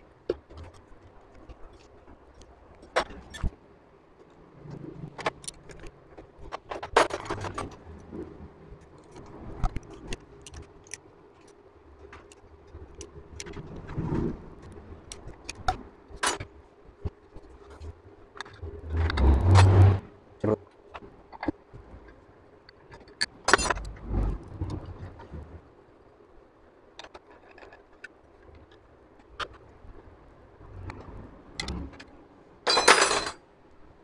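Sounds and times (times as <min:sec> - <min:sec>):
metal tools clinking on engine: 0:32.7 - 0:33.4.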